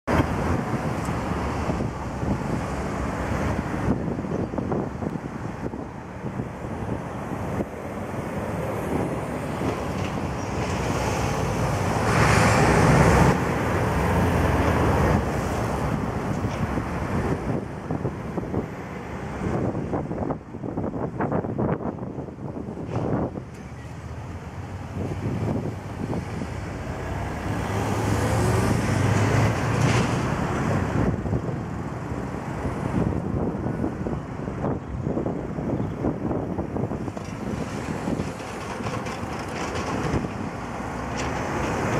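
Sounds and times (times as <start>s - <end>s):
road traffic rumble: 0.0s - 41.9s
vehicle passing engine hum: 7.2s - 19.9s, 23.1s - 41.9s
car passing close by: 8.7s - 16.2s, 25.6s - 31.2s.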